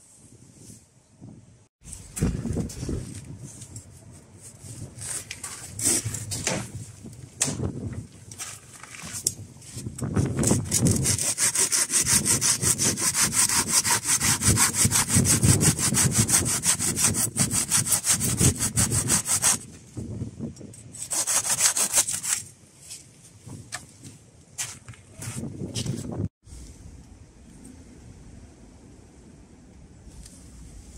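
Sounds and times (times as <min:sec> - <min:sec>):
pruning saw cutting wood: 0:10.5 - 0:19.6.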